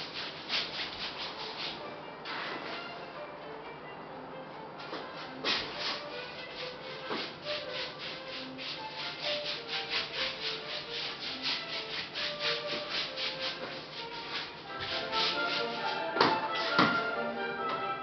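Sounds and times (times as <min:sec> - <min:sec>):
faint background music: 0:00.0 - 0:18.0
pad scratching paint on board: 0:05.0 - 0:17.0.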